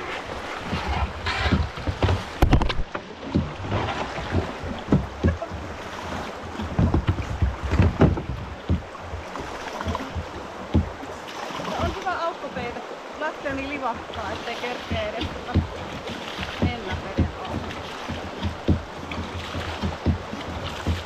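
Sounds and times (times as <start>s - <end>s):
river rapids rushing: 0.0s - 21.0s
water splashes and thumps: 0.0s - 21.0s.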